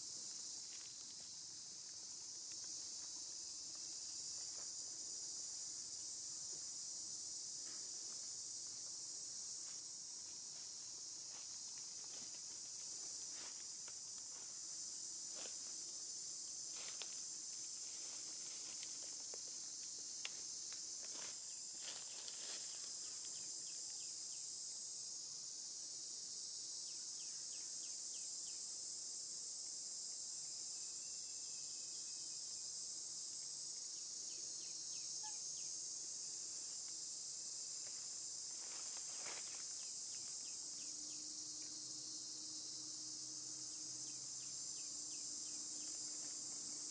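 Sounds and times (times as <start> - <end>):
insects droning: 0.0 - 46.9.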